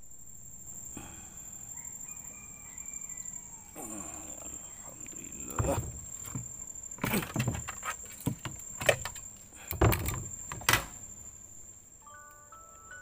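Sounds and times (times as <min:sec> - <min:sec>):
sharp knocks and clattering: 0:05.4 - 0:11.1
tinkling melody: 0:12.0 - 0:13.0.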